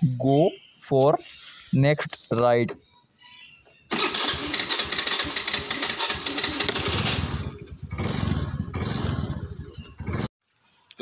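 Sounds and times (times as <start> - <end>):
scooter engine idling: 3.9 - 10.3.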